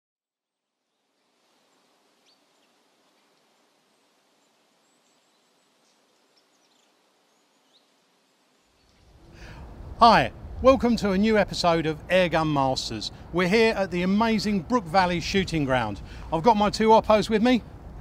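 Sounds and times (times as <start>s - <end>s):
faint outdoor hiss: 0.3s - 18.0s
faint bird chirps: 0.8s - 9.1s.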